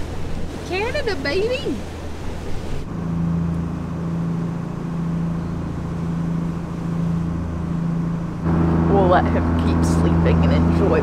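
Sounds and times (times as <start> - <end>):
boat diesel engines droning: 0.0 - 11.0
wind and water noise: 0.0 - 11.0.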